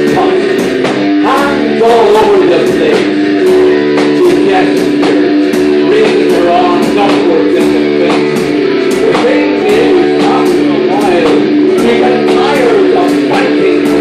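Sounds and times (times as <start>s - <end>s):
drums: 0.0s - 14.0s
electric guitars: 0.0s - 14.0s.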